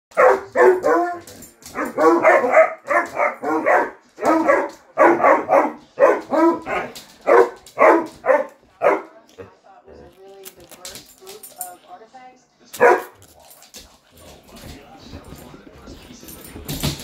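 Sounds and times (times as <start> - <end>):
hounds baying barks: 0.1 - 9.5, 12.8 - 13.6.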